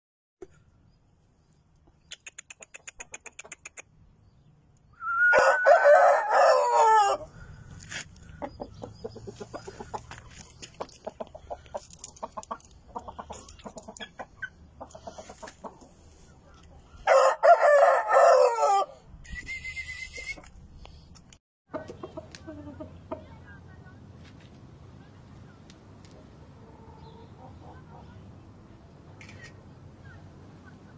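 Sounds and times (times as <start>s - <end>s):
short clicks: 1.8s - 3.9s
rooster crowing: 5.2s - 7.3s, 17.0s - 19.0s.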